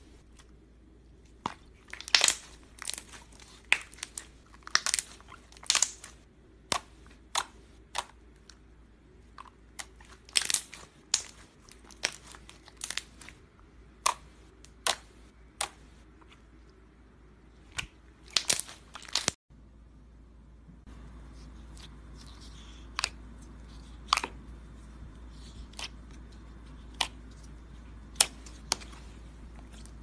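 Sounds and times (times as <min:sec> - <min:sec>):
slime crackling and popping: 0:01.4 - 0:08.2, 0:09.6 - 0:13.4, 0:17.7 - 0:19.4.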